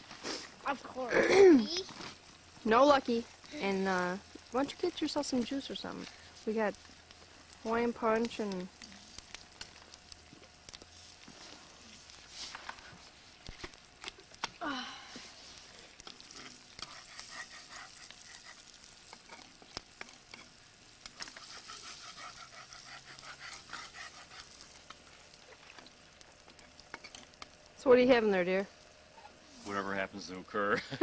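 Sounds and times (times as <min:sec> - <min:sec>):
eggs sizzling in a frying pan: 0:00.0 - 0:31.0
spatula scraping a pan: 0:16.0 - 0:23.7.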